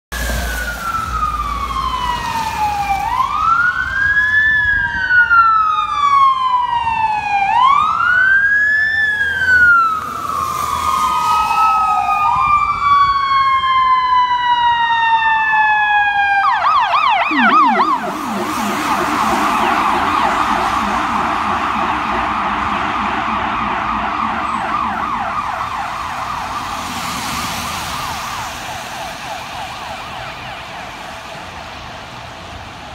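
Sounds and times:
fire truck sirens wailing: 0.2 - 32.9
low-pitched siren howler tone: 0.4 - 31.8
siren fast yelp: 15.8 - 26.9.

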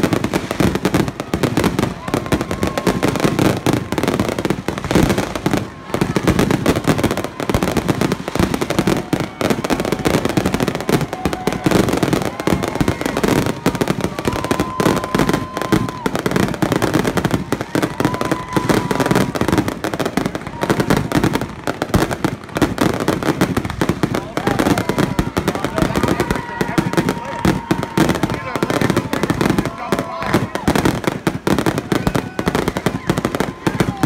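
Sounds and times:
fireworks bursting and crackling: 0.0 - 34.0.

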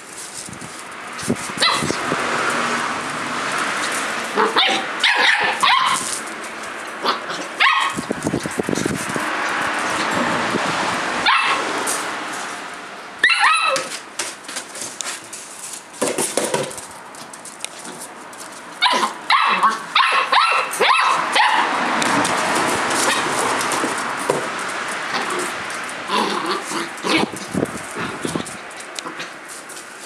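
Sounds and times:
puppies yapping: 1.2 - 10.5, 11.2 - 12.0, 13.2 - 14.1, 18.8 - 29.8.

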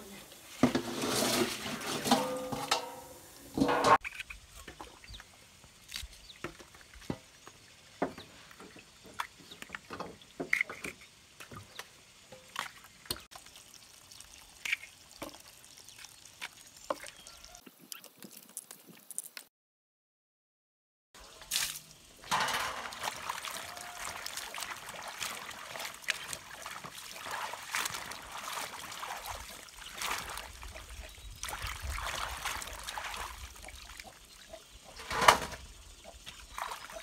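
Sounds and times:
metal basin clanking on pot: 0.6 - 4.0, 22.2 - 24.0
water splashes: 21.2 - 34.6, 35.8 - 37.0.

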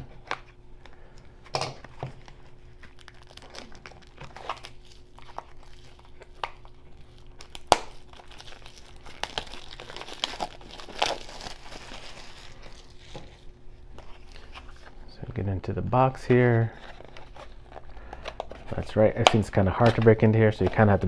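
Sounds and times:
plastic wrap crinkling: 1.8 - 15.0, 16.3 - 21.0.

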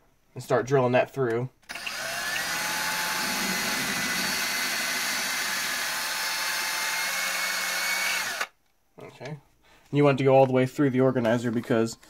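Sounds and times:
power drill boring through board: 1.7 - 8.5.

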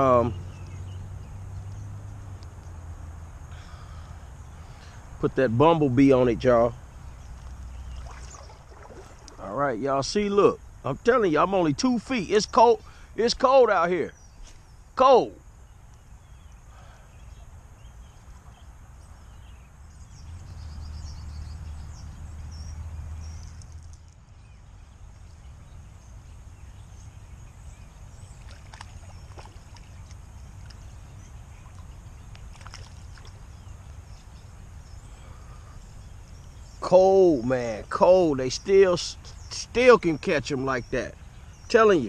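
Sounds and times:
outdoor background: 0.0 - 42.0.

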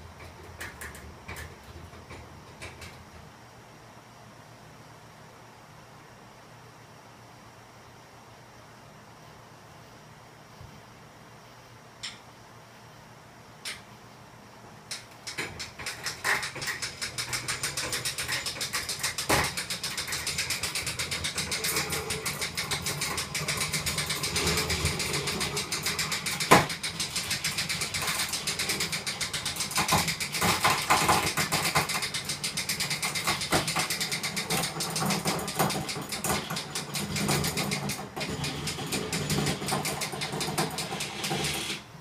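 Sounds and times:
winch running with fast pulsing: 14.9 - 41.9.

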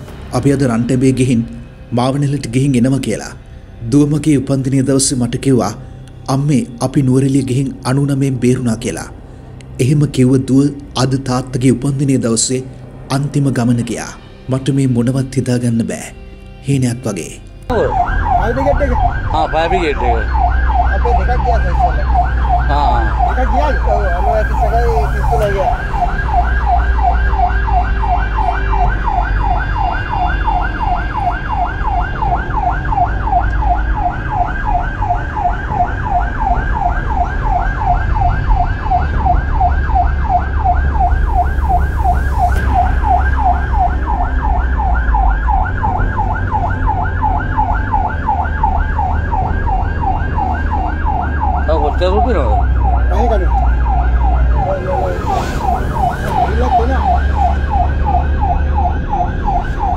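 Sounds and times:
low rumble: 17.5 - 59.9
siren yelping: 17.7 - 59.9.

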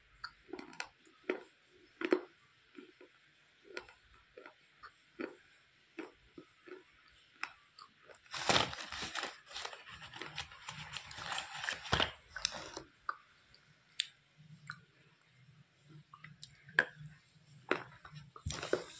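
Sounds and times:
crunching and chewing clay stick: 0.2 - 5.4, 6.0 - 8.3, 17.7 - 18.9.

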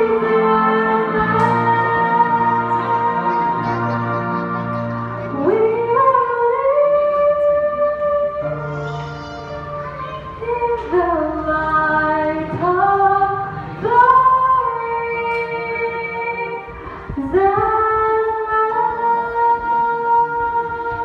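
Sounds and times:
girl singing into microphone: 0.0 - 21.0.

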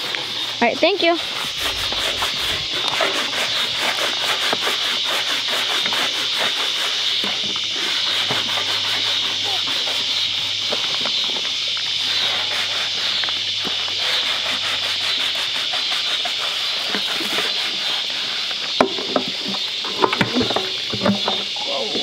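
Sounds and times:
sponge scrubbing metal drum: 0.0 - 22.0.

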